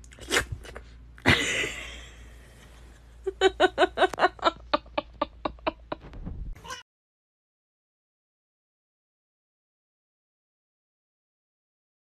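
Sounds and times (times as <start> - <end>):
person laughing: 1.2 - 2.2, 3.2 - 6.8.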